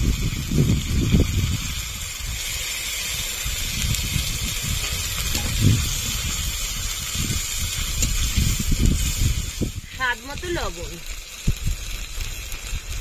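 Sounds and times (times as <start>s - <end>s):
spices sizzling in hot oil: 0.0s - 13.0s.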